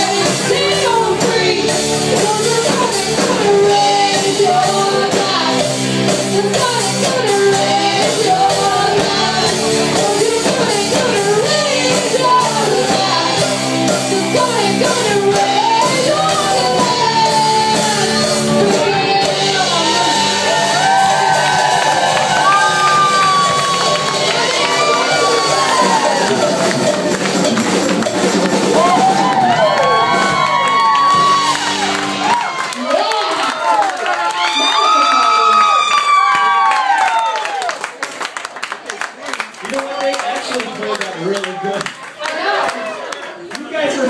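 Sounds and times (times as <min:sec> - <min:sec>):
person singing: 0:00.0 - 0:27.2
electric guitar: 0:00.0 - 0:33.2
drums: 0:00.0 - 0:41.2.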